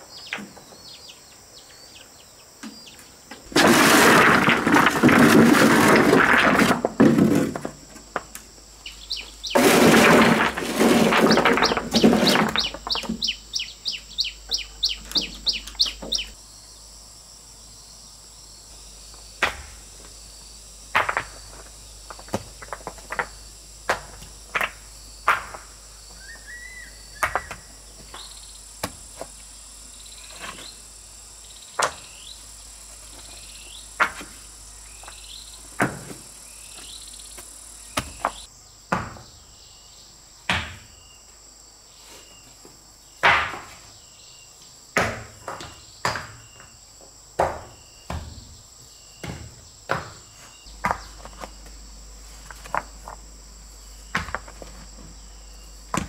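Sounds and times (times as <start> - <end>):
insects buzzing: 0.0 - 56.0
bird chirps: 8.8 - 9.6, 11.3 - 16.4, 26.1 - 27.6.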